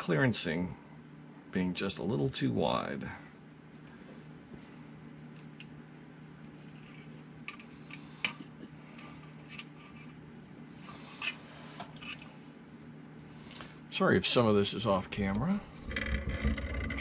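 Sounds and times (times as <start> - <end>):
low steady hum: 0.0 - 17.0
light clicks of small parts: 5.3 - 5.8.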